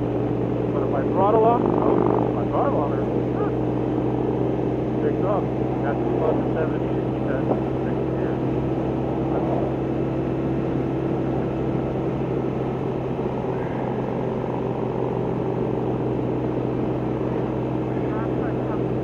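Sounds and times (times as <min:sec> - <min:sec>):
motorcycle engine running: 0:00.0 - 0:19.0
road noise: 0:00.0 - 0:19.0.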